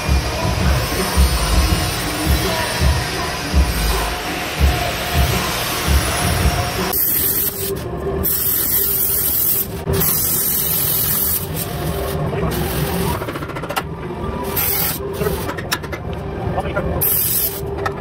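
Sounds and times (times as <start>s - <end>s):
arc welding crackling hiss: 0.0s - 13.2s, 14.5s - 15.3s, 17.0s - 17.6s.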